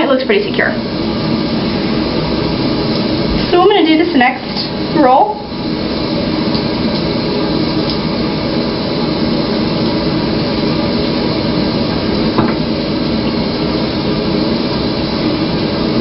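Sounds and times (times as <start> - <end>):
background hum and hiss: 0.0 - 16.0.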